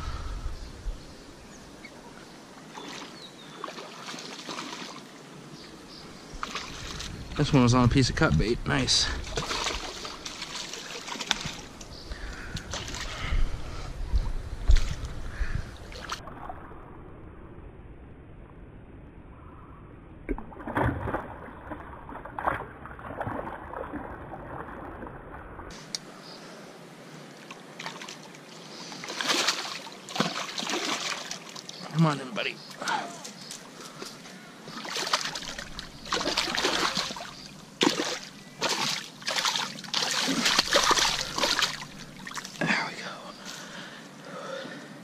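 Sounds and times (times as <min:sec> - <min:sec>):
fish splashing in water: 0:02.8 - 0:05.0, 0:09.2 - 0:11.7, 0:28.9 - 0:31.8, 0:34.7 - 0:42.6.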